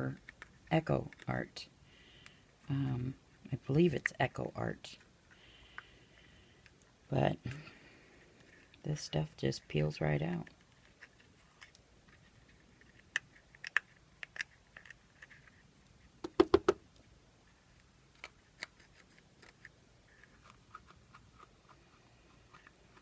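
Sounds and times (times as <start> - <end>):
resin clicking and crackling: 0.1 - 1.3, 10.4 - 17.0, 17.7 - 23.0.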